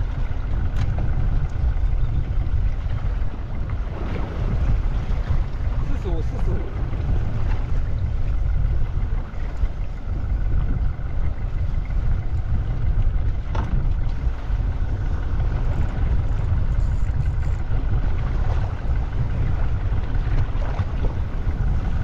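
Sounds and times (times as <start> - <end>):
boat engine running: 0.0 - 22.0
wind on microphone: 0.0 - 22.0.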